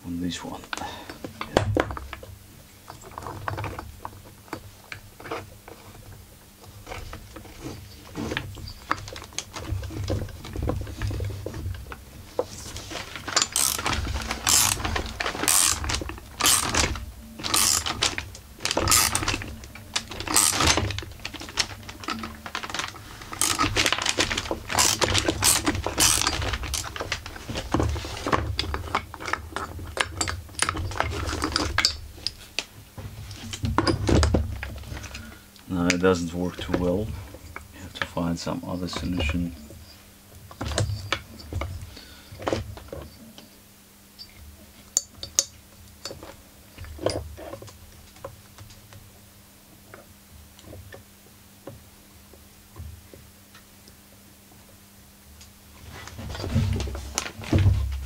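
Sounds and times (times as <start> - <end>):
dull handling thumps: 0.7 - 2.2
metal tools clinking and scraping: 12.5 - 32.4, 36.2 - 40.0.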